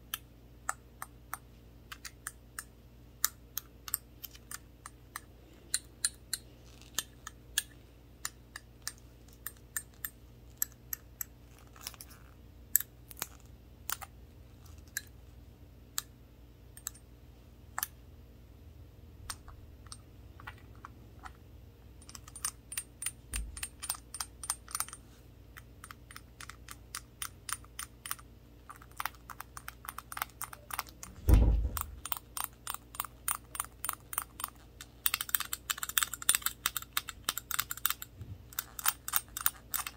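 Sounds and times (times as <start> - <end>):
dull thump: 31.2 - 32.0.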